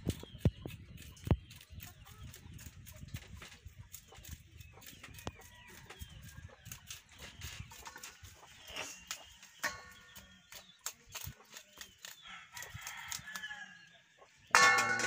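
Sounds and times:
chickens clucking: 0.0 - 15.0
rooster crowing: 12.3 - 13.8.

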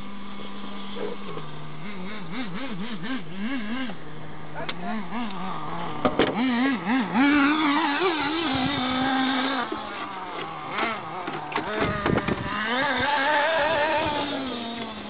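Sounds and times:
small model engine running: 0.0 - 15.0
sharp clicks and knocks: 6.0 - 6.4.

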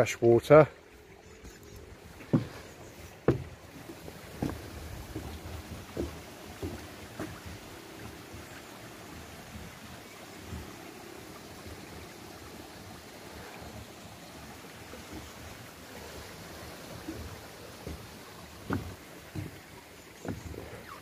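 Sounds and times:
wind: 0.0 - 21.0
footsteps on path: 1.4 - 7.8, 17.8 - 20.8
sea breaking against sea wall: 2.0 - 9.7, 10.4 - 21.0.

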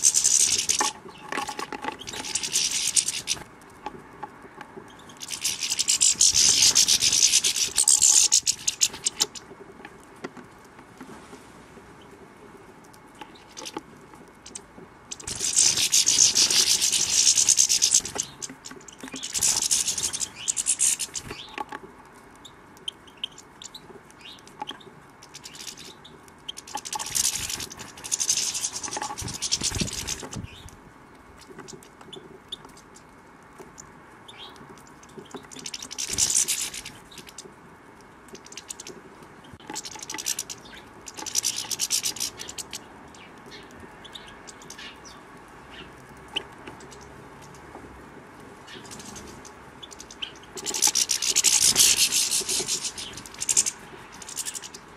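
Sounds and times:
goldfinches twittering: 0.0 - 3.4, 4.9 - 9.5, 14.4 - 21.6, 48.6 - 54.9.

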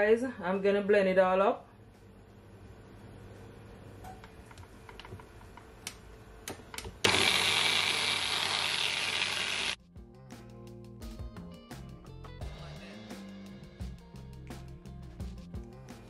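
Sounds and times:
blender running: 7.0 - 9.8.

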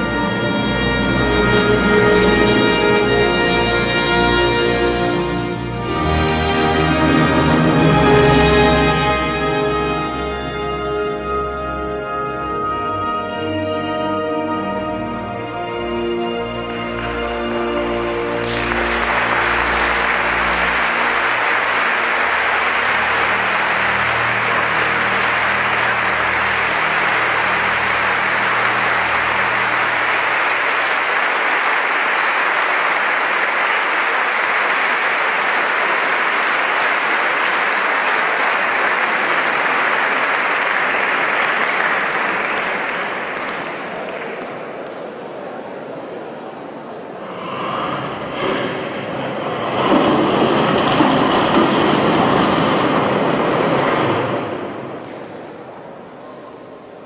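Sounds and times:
low music notes: 0.0 - 31.2
crowd applauding: 16.4 - 57.0.

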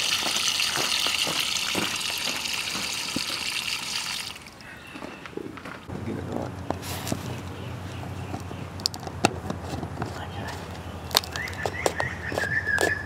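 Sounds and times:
water gushing into drain pipe: 0.0 - 4.6.

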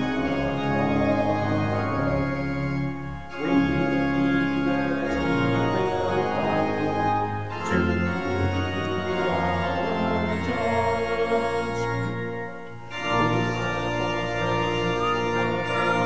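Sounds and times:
organ playing sustained chords: 0.0 - 16.0.

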